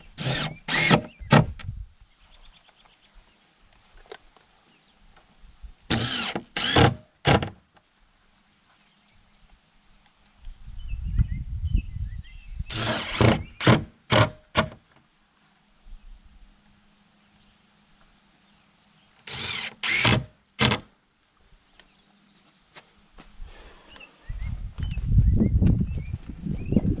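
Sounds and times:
cordless drill driving screws: 0:00.1 - 0:01.5, 0:05.9 - 0:07.6, 0:12.7 - 0:14.8, 0:19.2 - 0:20.9.

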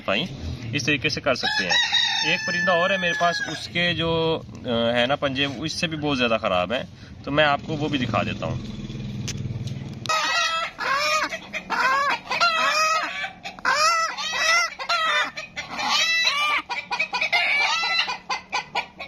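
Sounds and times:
chickens squawking in alarm: 0:01.3 - 0:04.2, 0:10.1 - 0:19.0.

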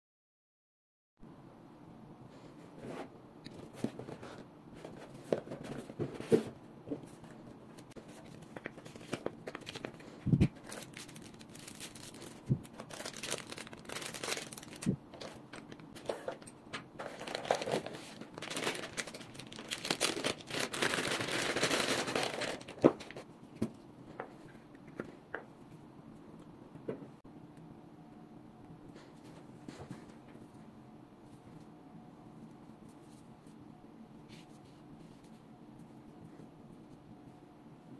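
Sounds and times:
plastic bags crinkling: 0:08.0 - 0:23.2.

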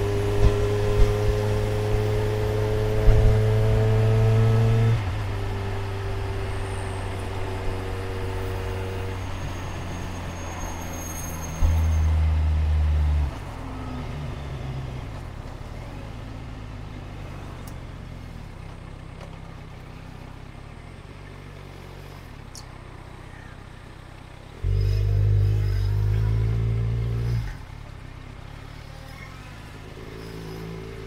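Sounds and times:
motorcycle engine: 0:00.0 - 0:10.8, 0:18.2 - 0:31.0.

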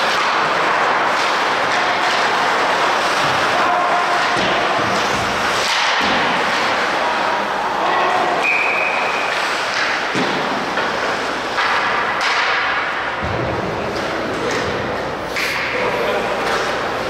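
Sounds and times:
thuds against rink boards: 0:00.0 - 0:06.9, 0:09.4 - 0:14.8
skates on ice: 0:00.0 - 0:17.0.

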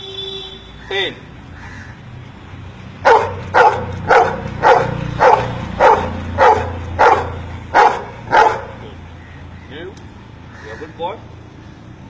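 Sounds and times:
dog barking: 0:03.0 - 0:08.8.

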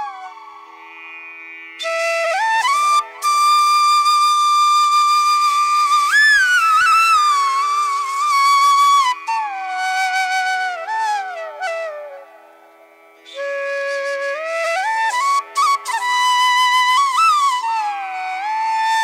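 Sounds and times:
slow melody with sliding bends: 0:00.0 - 0:05.0.

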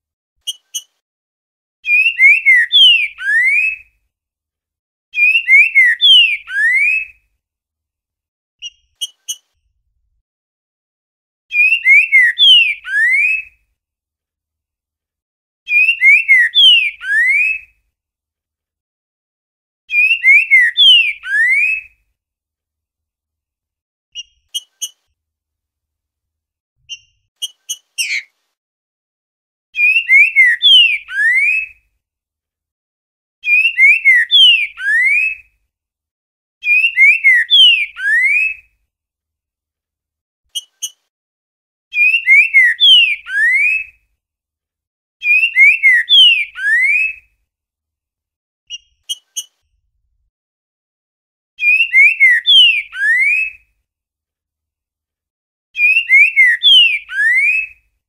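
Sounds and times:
bird whistled song: 0:00.4 - 0:00.9, 0:01.8 - 0:04.0, 0:05.2 - 0:07.2, 0:11.5 - 0:13.6, 0:15.7 - 0:17.8, 0:19.9 - 0:22.0, 0:24.2 - 0:25.0, 0:26.8 - 0:28.3, 0:29.8 - 0:31.8, 0:33.4 - 0:35.5, 0:36.6 - 0:38.7, 0:41.9 - 0:44.0, 0:45.2 - 0:47.3, 0:51.6 - 0:53.6, 0:55.8 - 0:57.8.

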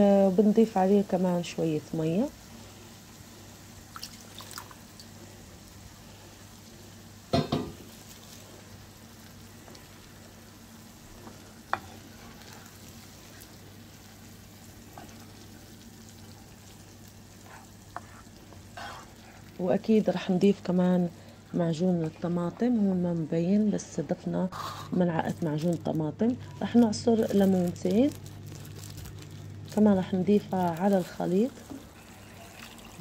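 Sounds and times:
sauce frying in a pan: 0:00.0 - 0:23.3, 0:27.2 - 0:33.0.

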